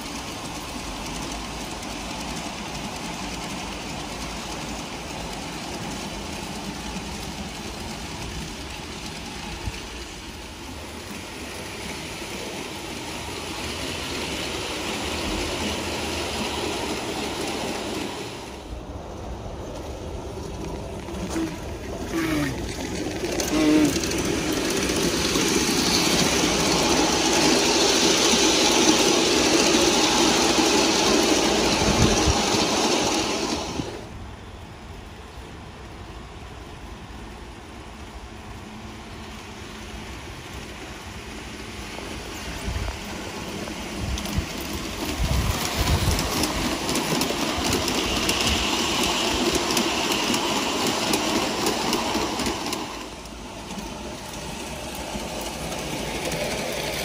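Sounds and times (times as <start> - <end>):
model train wheels on rails: 0.0 - 57.0
wheel squeals: 21.0 - 33.8.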